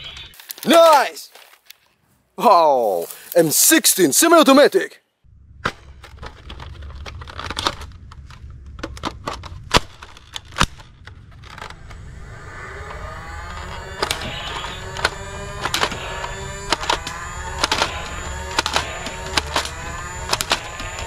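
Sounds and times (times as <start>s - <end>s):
toy dart blaster firing: 10.6s - 21.0s.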